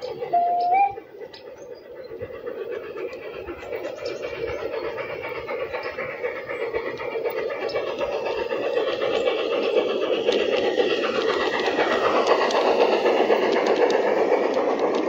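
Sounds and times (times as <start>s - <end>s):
model train wheels rumbling: 0.0s - 15.0s
light clicks: 10.1s - 15.0s.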